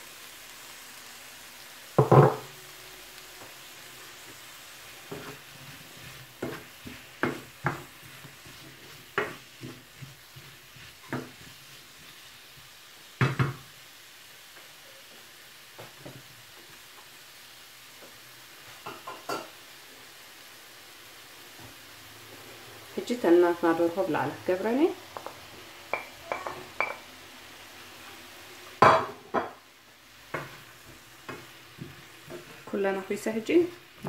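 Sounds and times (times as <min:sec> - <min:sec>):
vegetables sizzling in a frying pan: 0:00.0 - 0:34.0
wooden spatula scraping a pan: 0:04.2 - 0:12.8, 0:30.3 - 0:33.4.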